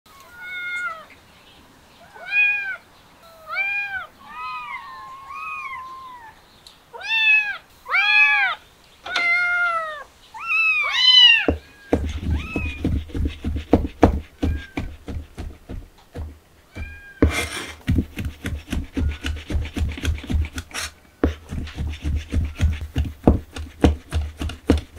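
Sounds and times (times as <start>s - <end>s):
kittens meowing: 2.0s - 12.8s, 14.4s - 14.9s, 16.7s - 17.3s
knife chopping on cutting board: 12.0s - 24.9s.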